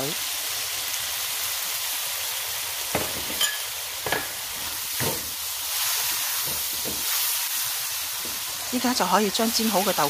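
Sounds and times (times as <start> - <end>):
food sizzling in a pan: 0.0 - 10.0
spatula scraping and knocking pan: 3.0 - 7.4.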